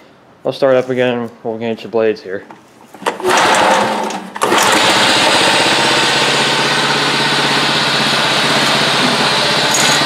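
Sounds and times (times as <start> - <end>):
lawn mower engine running: 2.9 - 10.0.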